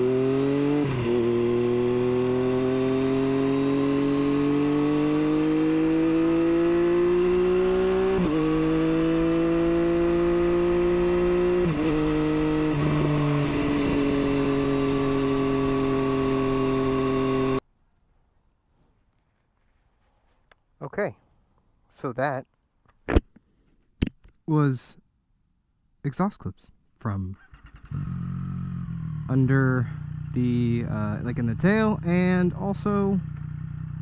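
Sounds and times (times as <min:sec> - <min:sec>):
motorcycle engine accelerating: 0:00.0 - 0:17.6, 0:27.4 - 0:34.0.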